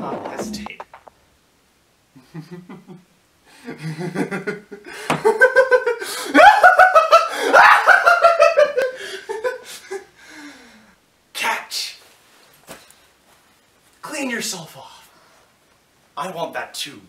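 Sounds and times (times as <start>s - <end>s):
man laughing: 2.1s - 10.1s.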